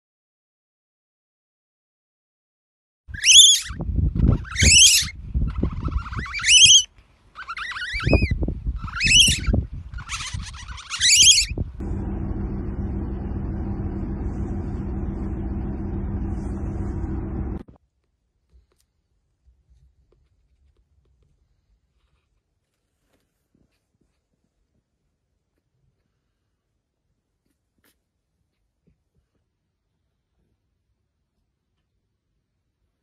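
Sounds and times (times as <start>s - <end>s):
otter cub whistling calls: 3.2s - 11.6s
low wind rumble: 3.8s - 6.4s, 8.0s - 10.6s, 11.4s - 17.6s
ferry engine drone: 11.8s - 17.7s.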